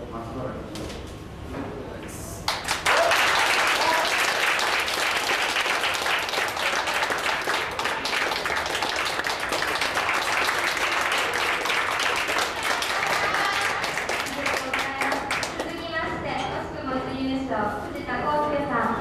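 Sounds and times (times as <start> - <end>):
people applauding: 2.5 - 15.7.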